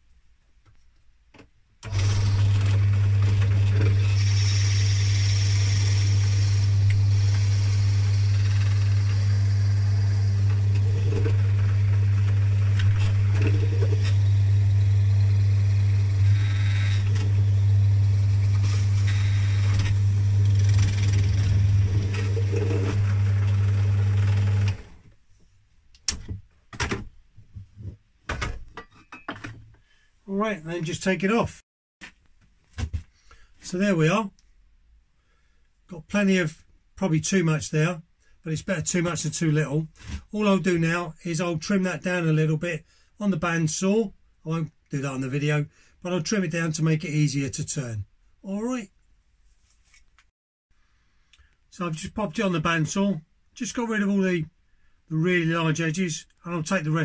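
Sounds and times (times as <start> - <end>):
drill bit scraping wood: 1.8 - 25.0
drill press motor humming: 1.8 - 25.0.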